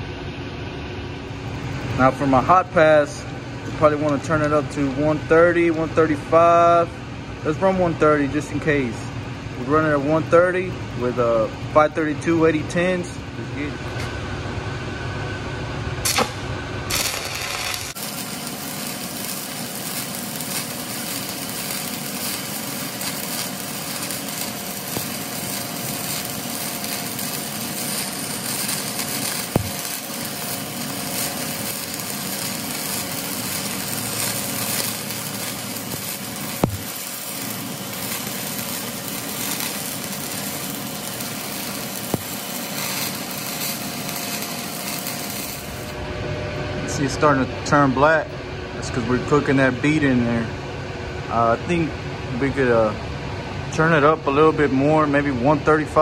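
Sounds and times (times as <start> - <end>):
welding arc crackling and hissing: 16.0 - 46.0.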